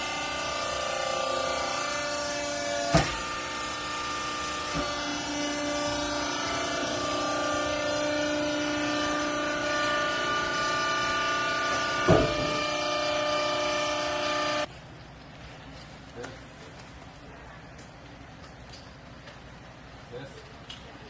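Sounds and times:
hydraulic motor humming: 0:00.0 - 0:14.7.

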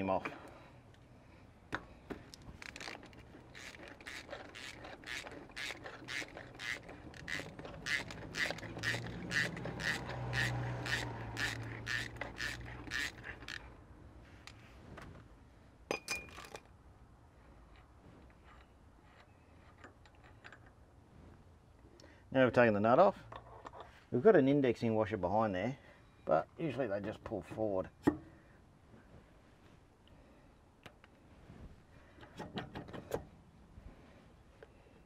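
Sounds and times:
socket ratchet clicking: 0:02.6 - 0:13.6.

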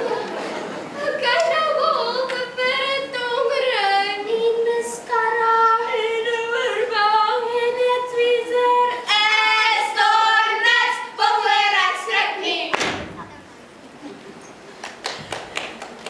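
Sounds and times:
children singing: 0:07.9 - 0:12.7.

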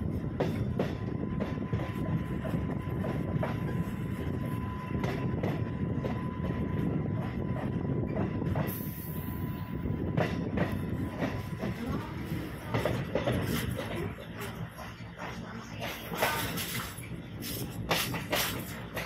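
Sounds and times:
train rumbling: 0:00.0 - 0:19.0
wheels clacking over rail joints: 0:11.2 - 0:19.0.

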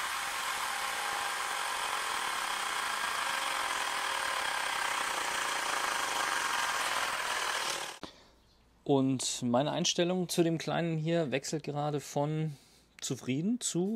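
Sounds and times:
air compressor running: 0:00.0 - 0:08.0.

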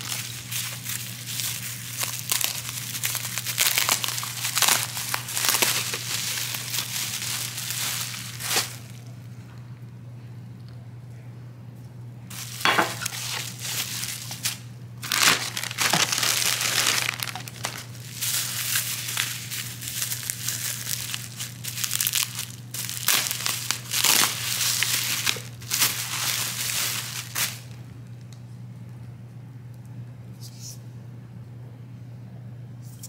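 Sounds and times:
bubble wrap crinkling: 0:00.0 - 0:09.3, 0:12.3 - 0:28.3.

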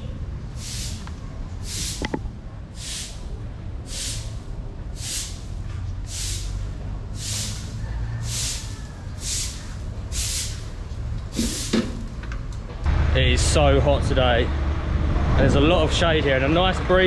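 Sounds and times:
broom sweeping concrete floor: 0:00.5 - 0:12.0.

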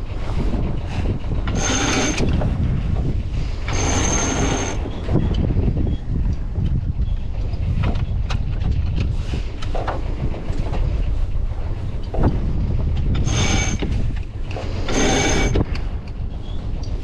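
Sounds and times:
rigging clicks and creaks: 0:00.0 - 0:17.0
wind buffeting the microphone: 0:00.0 - 0:17.0
winch ratcheting: 0:00.4 - 0:05.5, 0:13.0 - 0:17.0.

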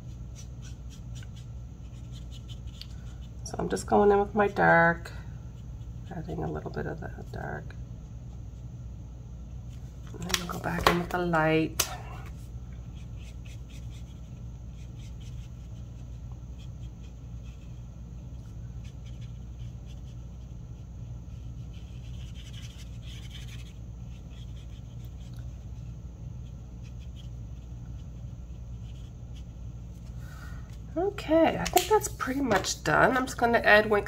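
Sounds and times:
marker scratching on card: 0:00.0 - 0:03.3, 0:12.9 - 0:17.8, 0:18.8 - 0:20.6, 0:21.3 - 0:29.5
steady low hum: 0:00.0 - 0:34.0.

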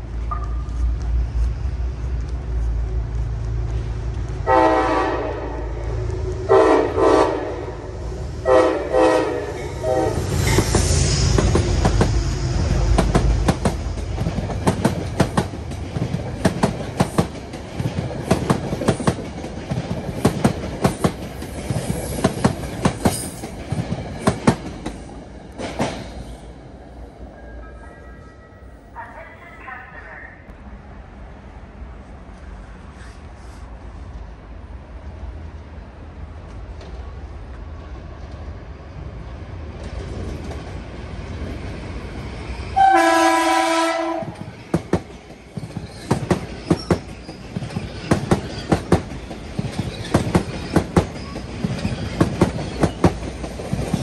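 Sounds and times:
train horn blasts: 0:04.4 - 0:10.4, 0:42.8 - 0:44.4
train wheels clicking over rails: 0:09.6 - 0:26.6, 0:44.1 - 0:54.0.

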